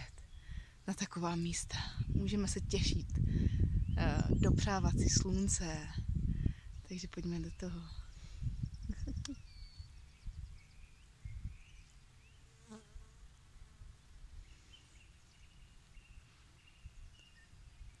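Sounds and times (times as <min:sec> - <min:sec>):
wind gusting on microphone: 0:00.0 - 0:11.8
distant bird chirps: 0:06.7 - 0:12.6.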